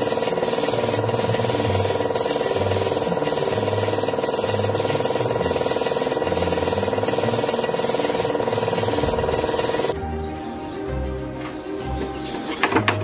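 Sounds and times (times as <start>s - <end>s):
steady mechanical hum: 0.0s - 9.9s
paint spray gun hissing: 0.0s - 10.0s.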